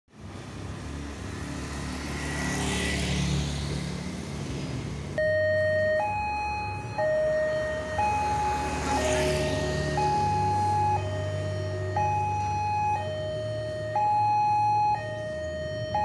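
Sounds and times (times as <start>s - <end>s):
two-tone crossing warning siren: 5.2s - 16.0s
motorcycle engine: 6.8s - 14.1s.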